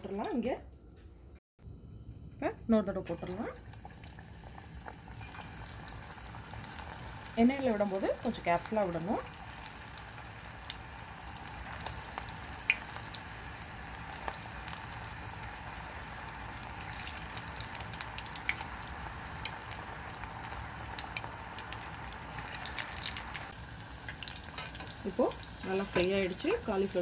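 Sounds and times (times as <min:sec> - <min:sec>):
food deep-frying in oil: 0:03.0 - 0:27.0.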